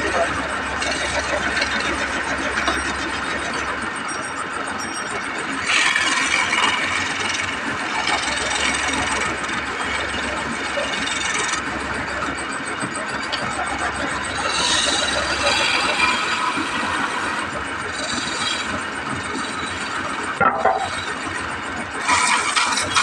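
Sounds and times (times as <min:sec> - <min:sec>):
lathe chisel scraping wood: 0:00.3 - 0:03.2, 0:05.6 - 0:11.6, 0:13.2 - 0:23.0.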